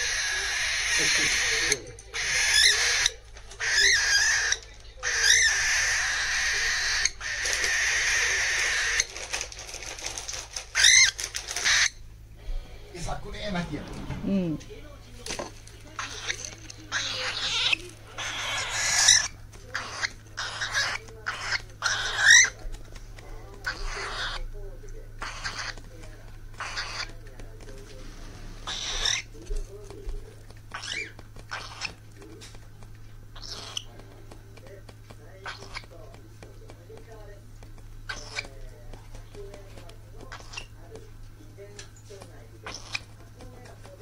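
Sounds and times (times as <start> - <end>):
bird squeak: 0.0 - 9.1, 10.7 - 12.0, 16.0 - 22.6, 23.6 - 24.5, 25.2 - 25.8, 26.6 - 27.2, 28.6 - 29.4, 30.7 - 32.0, 33.3 - 33.9, 35.4 - 35.9, 38.1 - 38.6, 40.3 - 40.8, 42.6 - 43.1
cockatiel begging calls: 0.0 - 9.2, 10.7 - 12.0, 16.0 - 22.6, 23.6 - 24.5, 25.2 - 25.9, 26.5 - 27.2, 28.6 - 29.4, 30.7 - 32.0, 33.3 - 34.0, 35.4 - 35.9, 38.1 - 38.6, 40.3 - 40.7, 42.6 - 43.1
cockatiel chirps: 0.0 - 9.2, 10.7 - 12.0, 16.0 - 22.6, 23.6 - 24.5, 25.2 - 25.9, 26.5 - 27.2, 28.6 - 29.4, 30.7 - 32.0, 33.3 - 34.0, 35.4 - 35.9, 38.1 - 38.6, 40.3 - 40.8, 42.6 - 43.2.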